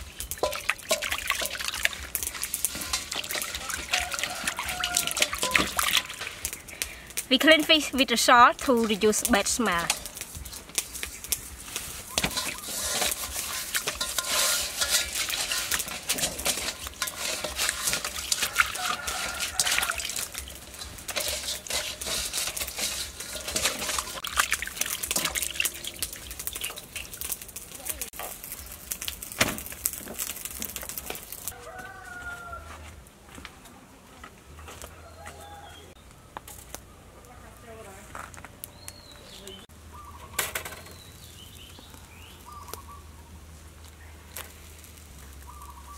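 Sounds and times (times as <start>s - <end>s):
hands scrubbing fish in water: 0.0s - 6.6s, 11.7s - 27.5s
water splashing and dripping: 0.0s - 8.0s, 8.6s - 31.5s.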